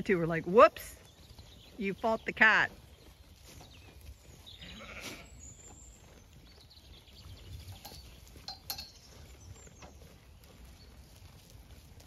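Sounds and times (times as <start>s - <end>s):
sheep munching hay: 2.7s - 12.0s.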